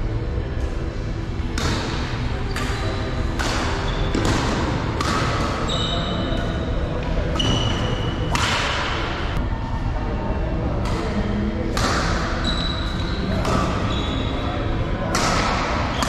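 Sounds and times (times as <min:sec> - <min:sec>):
racket hitting shuttlecock: 0:01.5 - 0:05.7, 0:06.3 - 0:09.2, 0:10.8 - 0:12.5, 0:13.3 - 0:13.9, 0:15.0 - 0:16.0
sneakers squeaking on floor: 0:02.4 - 0:08.3, 0:12.3 - 0:14.6.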